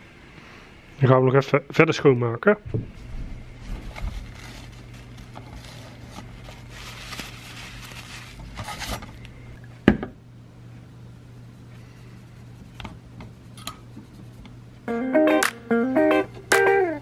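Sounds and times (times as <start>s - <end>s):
steady low hum: 0.0s - 17.0s
tissue scrubbing metal heatsink: 3.6s - 9.1s.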